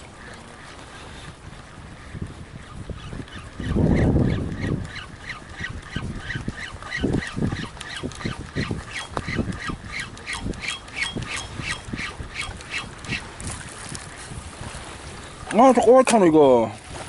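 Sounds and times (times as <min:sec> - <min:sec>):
water slapping against hull: 0:00.0 - 0:17.0
fishing reel squeaky clicking: 0:00.9 - 0:14.2.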